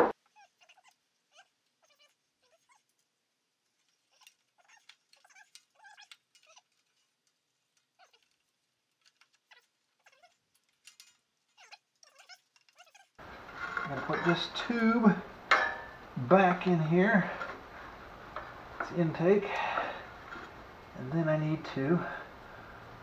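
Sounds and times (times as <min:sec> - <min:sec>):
faint squeaky chirps: 0:00.3 - 0:03.0, 0:03.7 - 0:07.1, 0:09.4 - 0:13.2.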